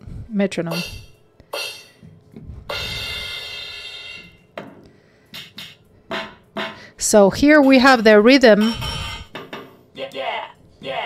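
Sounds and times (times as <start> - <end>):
drum hits from small speaker: 0.7 - 1.9, 2.7 - 9.7
cymbal wash: 2.7 - 4.4.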